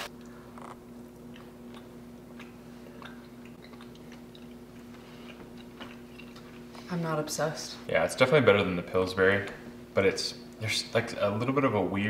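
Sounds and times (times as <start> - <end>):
steady low hum: 0.0 - 12.0
chewing and mouth clicks: 0.2 - 6.9.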